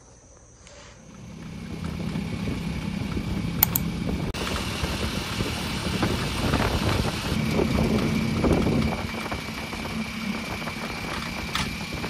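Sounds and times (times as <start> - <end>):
motor hum: 0.3 - 12.0
rushing background noise: 1.6 - 12.0
quick clicks: 3.6 - 3.9.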